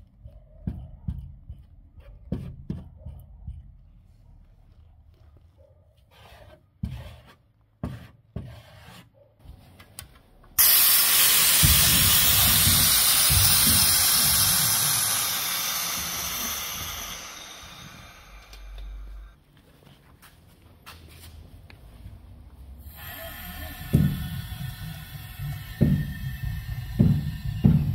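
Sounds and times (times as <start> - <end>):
compressed air spray hissing: 10.6 - 19.3, 22.8 - 27.9.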